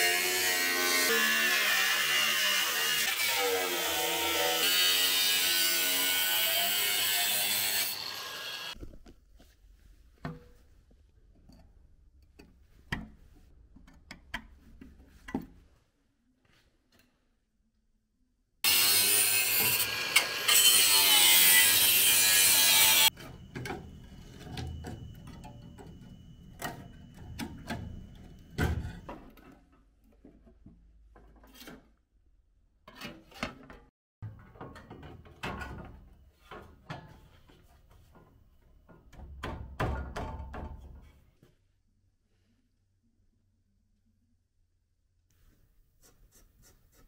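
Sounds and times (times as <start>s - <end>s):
angle grinder grinding steel: 0.0s - 8.8s, 18.6s - 27.1s.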